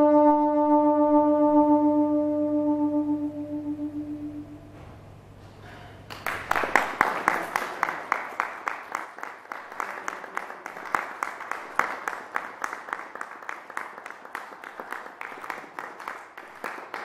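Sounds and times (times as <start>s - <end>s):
audience applause: 6.1s - 17.0s.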